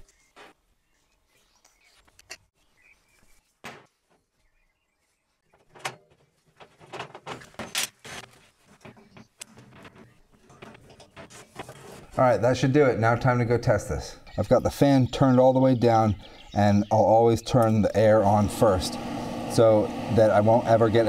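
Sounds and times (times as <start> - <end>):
clicks and knocks of pipe fittings: 5.6 - 12.2.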